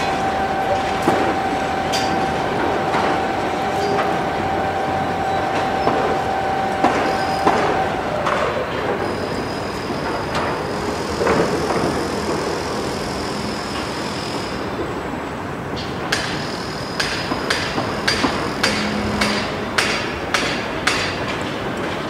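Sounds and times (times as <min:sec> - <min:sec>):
hammer blows: 0:00.0 - 0:14.2, 0:16.1 - 0:21.4
high steady whine: 0:00.0 - 0:15.8
machinery noise: 0:00.0 - 0:22.0.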